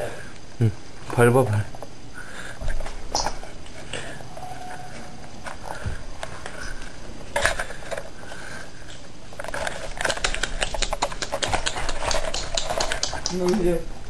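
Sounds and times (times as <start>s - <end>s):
puppy claws clicking on wood floor: 9.4s - 13.7s.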